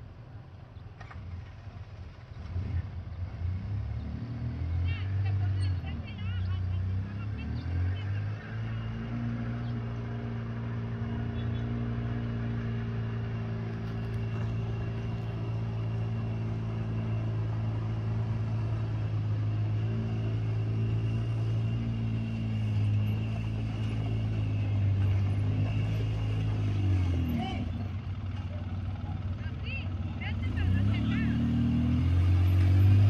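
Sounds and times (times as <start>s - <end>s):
vehicle engine running: 0.0s - 33.0s.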